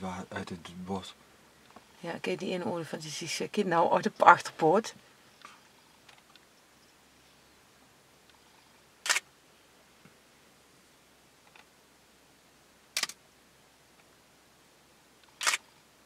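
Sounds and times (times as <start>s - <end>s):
faint steady background noise: 0.0s - 16.0s
camera shutter clicks: 9.0s - 9.3s, 13.0s - 13.2s, 15.3s - 15.7s.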